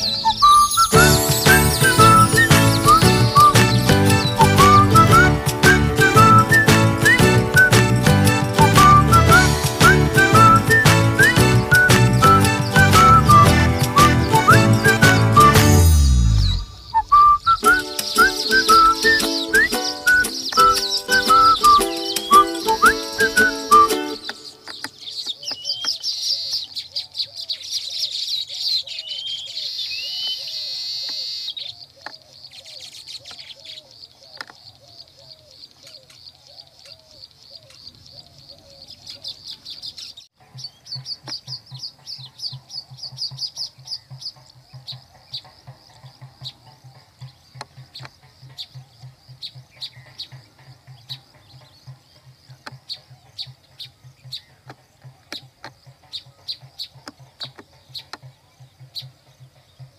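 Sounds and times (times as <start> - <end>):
birds chirping rapidly: 0.0 - 59.9.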